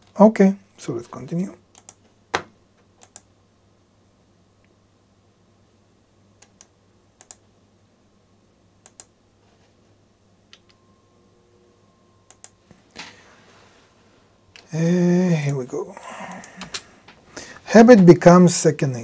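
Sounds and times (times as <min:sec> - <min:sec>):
faint steady hum: 0:00.0 - 0:19.0
computer keys clicking: 0:01.7 - 0:02.0, 0:02.9 - 0:03.3, 0:06.4 - 0:07.4, 0:08.8 - 0:09.2, 0:10.5 - 0:10.8, 0:12.3 - 0:12.6, 0:16.3 - 0:17.2
mouse clicks: 0:01.7 - 0:02.0, 0:03.0 - 0:03.3, 0:06.4 - 0:07.4, 0:08.8 - 0:09.1, 0:12.3 - 0:12.6.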